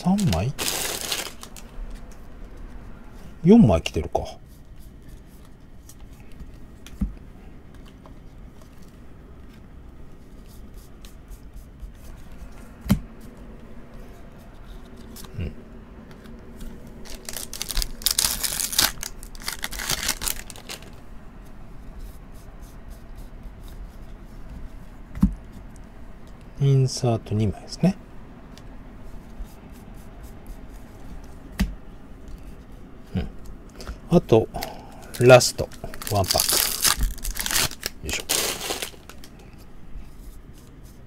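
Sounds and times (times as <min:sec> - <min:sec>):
foil wrapper rustling and ripping: 0:00.0 - 0:01.7, 0:17.0 - 0:21.0, 0:34.6 - 0:39.3
cards being handled: 0:00.0 - 0:02.7, 0:16.1 - 0:21.0, 0:34.6 - 0:39.6.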